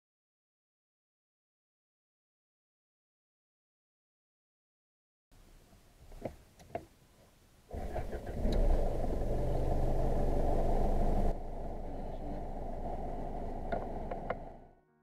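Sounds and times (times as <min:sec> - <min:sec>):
diesel engine idling: 0:07.8 - 0:14.7.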